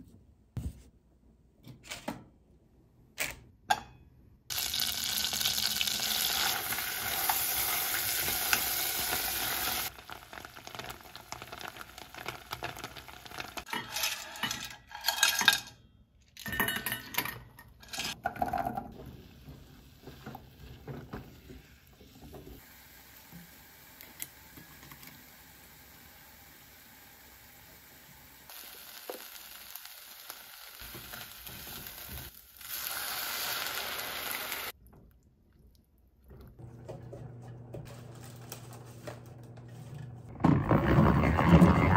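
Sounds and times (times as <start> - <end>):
clams sizzling in butter: 4.5 - 14.3, 22.6 - 34.8.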